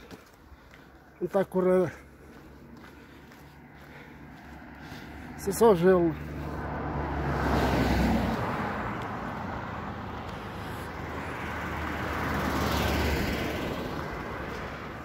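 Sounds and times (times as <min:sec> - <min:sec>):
cars passing close by: 0:00.0 - 0:15.0.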